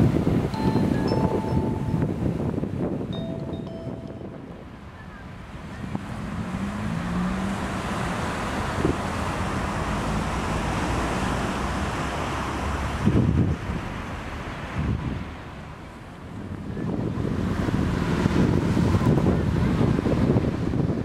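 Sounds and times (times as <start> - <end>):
rushing wind: 0.0 - 21.0
wind gusts thudding on microphone: 0.0 - 21.0.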